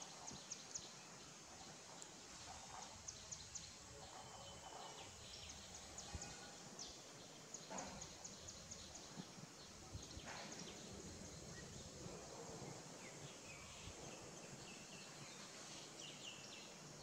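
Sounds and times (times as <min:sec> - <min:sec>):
woodland ambience: 0:00.0 - 0:17.0.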